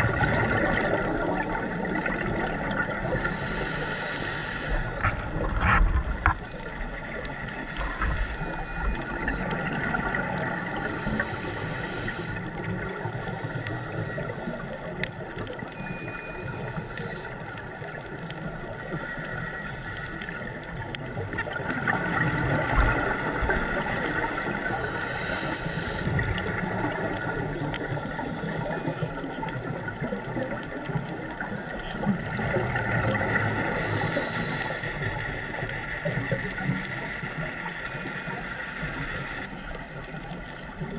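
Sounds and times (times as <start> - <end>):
underwater bubbles gurgling: 0.0 - 40.9
steady hiss: 1.4 - 15.2, 22.6 - 29.5, 32.8 - 40.2.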